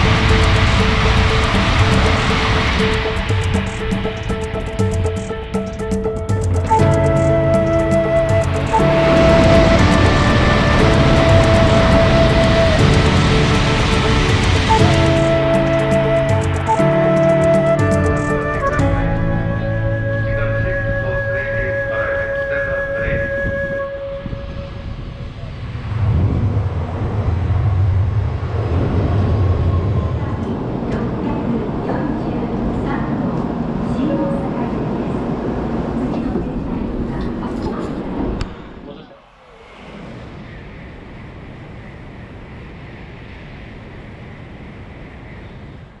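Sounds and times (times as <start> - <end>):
train pulling into station: 0.0 - 46.0.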